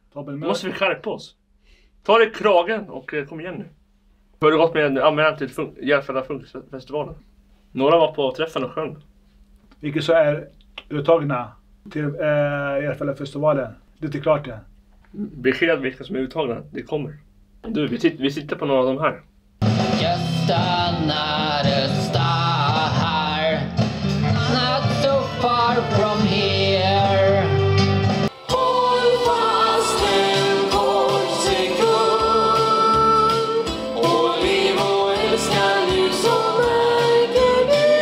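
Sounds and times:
music backing track: 19.6 - 38.0
person singing into a microphone: 20.0 - 38.0.

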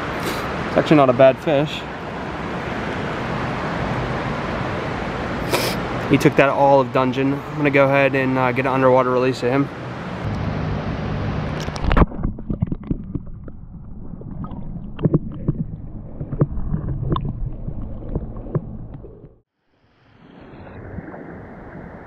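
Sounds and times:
muffled stream underwater: 11.4 - 19.4, 20.0 - 22.0.

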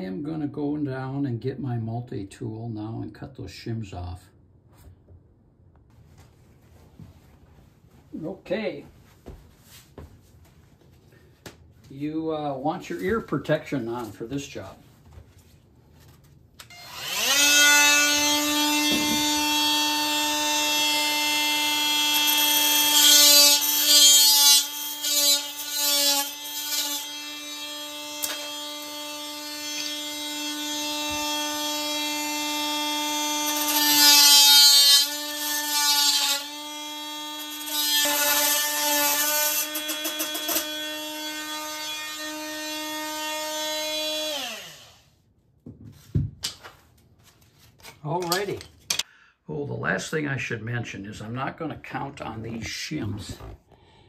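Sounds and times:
oscillating multi-tool whining: 16.7 - 45.1.

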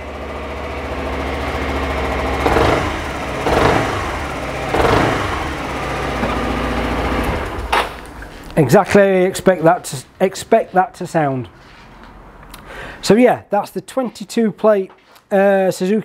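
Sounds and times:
scooter engine idling and revving: 0.0 - 8.5.

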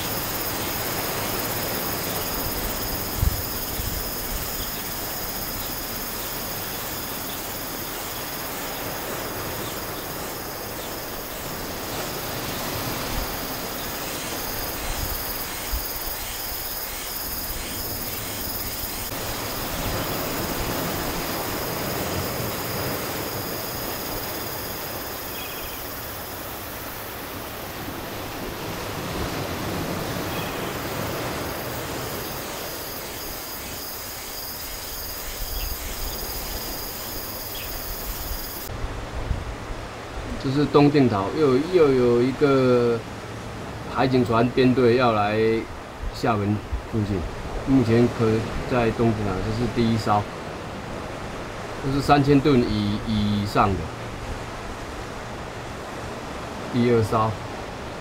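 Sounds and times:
high-pitched insect buzz: 0.0 - 27.8, 30.1 - 38.7.

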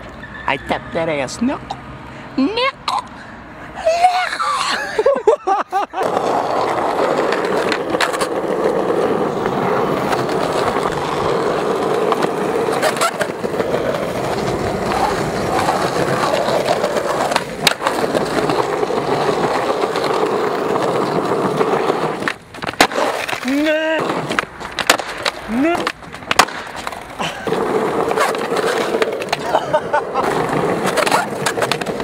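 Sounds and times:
skateboard wheels rolling on pavement: 0.0 - 32.0
skateboard sharp clacks: 6.0 - 29.6, 30.2 - 32.0.

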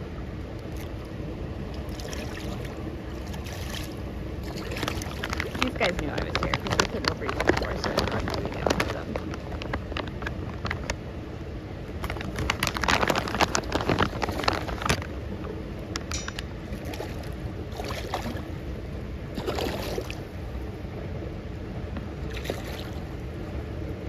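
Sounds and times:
steady low rumble: 0.0 - 24.0
fish splashing in water: 1.7 - 10.7, 12.0 - 15.2, 16.1 - 18.6, 19.3 - 20.6, 22.2 - 23.2.

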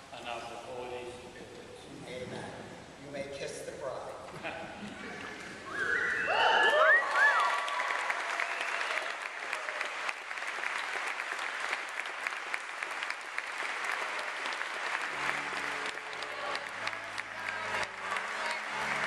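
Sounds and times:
congregation applauding: 5.0 - 19.0
person whooping: 5.6 - 9.1.

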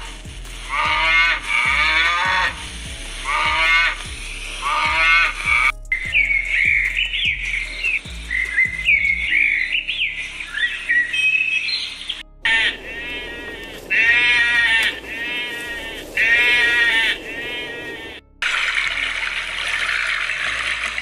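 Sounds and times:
sheep bleating: 0.7 - 2.6, 3.2 - 4.0, 4.6 - 5.7, 12.5 - 18.2
high chirping bird calls: 4.6 - 18.2.

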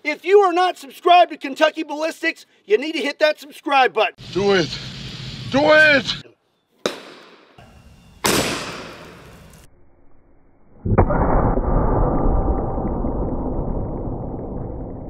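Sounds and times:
cartridge bang: 6.8 - 7.6, 8.2 - 9.3.

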